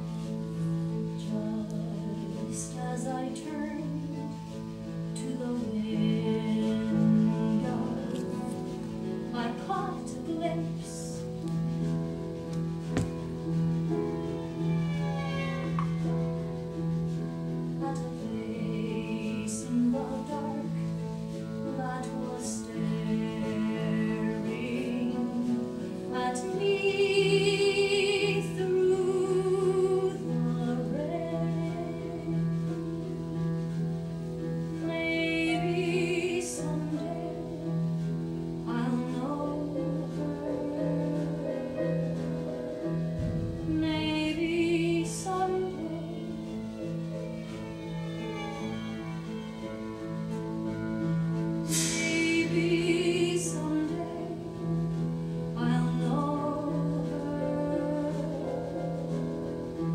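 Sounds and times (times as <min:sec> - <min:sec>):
instrumental accompaniment: 0:00.0 - 0:59.9
woman singing with vibrato: 0:05.2 - 0:08.6, 0:17.8 - 0:20.8, 0:21.8 - 0:32.4, 0:34.8 - 0:37.5, 0:43.6 - 0:46.4, 0:51.6 - 0:54.6, 0:55.6 - 0:58.6.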